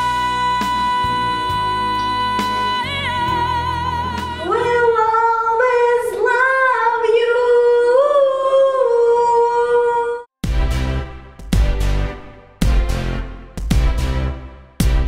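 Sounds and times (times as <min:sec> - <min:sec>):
woman singing into a microphone: 0:00.0 - 0:10.2
backing track with chords and beat: 0:10.4 - 0:15.0.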